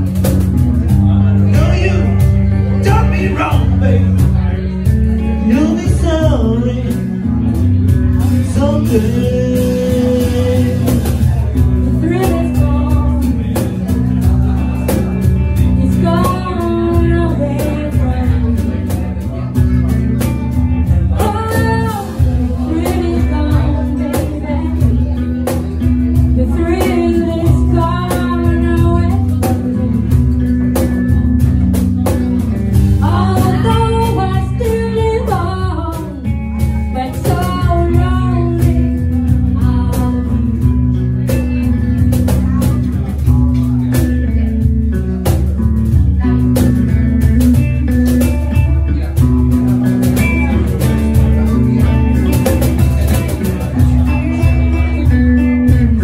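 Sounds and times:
cajon: 0:00.0 - 0:56.0
guitar: 0:00.0 - 0:56.0
man singing: 0:00.6 - 0:31.4, 0:32.3 - 0:43.4
woman singing: 0:07.9 - 0:19.6, 0:21.1 - 0:30.6, 0:32.9 - 0:42.9.

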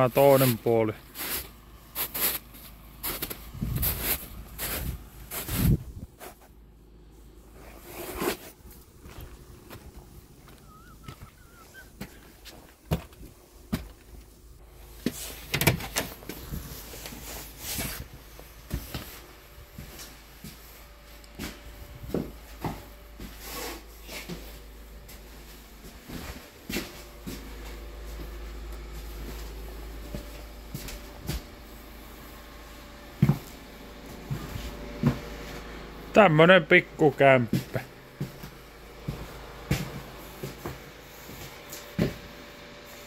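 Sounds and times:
low steady hum: 0:00.0 - 0:43.0
footsteps on concrete steps: 0:09.0 - 0:14.3, 0:21.4 - 0:23.4, 0:37.5 - 0:42.3
footsteps on tiled floor: 0:09.0 - 0:14.3, 0:21.4 - 0:31.6, 0:33.2 - 0:35.6, 0:37.5 - 0:42.3.

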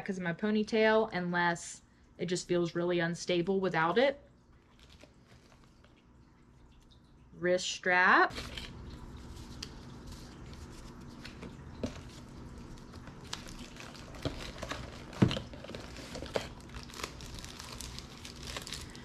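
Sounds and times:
packaging crinkling: 0:04.6 - 0:06.0, 0:08.3 - 0:19.0.

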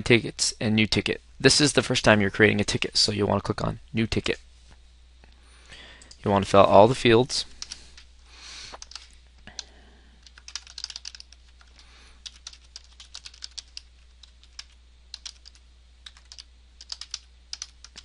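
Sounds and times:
keyboard typing clicks: 0:08.8 - 0:18.0.

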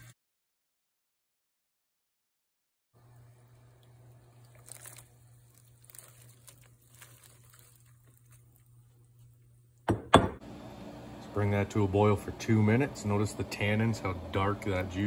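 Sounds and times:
boiling water crackles and pops: 0:03.0 - 0:09.8
low steady hum: 0:03.0 - 0:15.0.

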